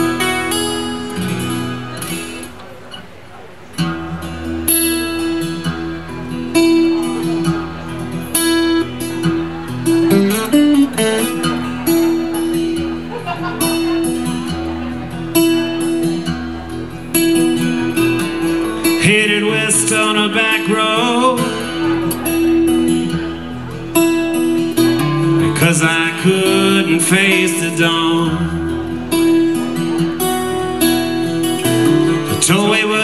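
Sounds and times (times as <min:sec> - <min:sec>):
acoustic guitar strumming: 0:00.0 - 0:33.0
man singing: 0:18.2 - 0:22.1, 0:25.0 - 0:29.4, 0:31.6 - 0:33.0.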